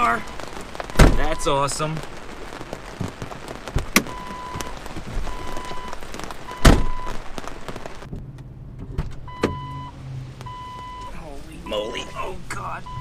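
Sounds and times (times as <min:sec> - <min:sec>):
rain pattering on vehicle: 0:00.0 - 0:13.0
car door shutting thud: 0:01.0 - 0:01.2, 0:06.6 - 0:07.0.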